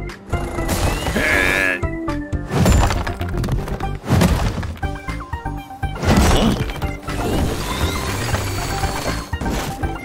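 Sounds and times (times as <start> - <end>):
background music: 0.0 - 10.0
stone blocks shifting and crashing: 2.5 - 5.0.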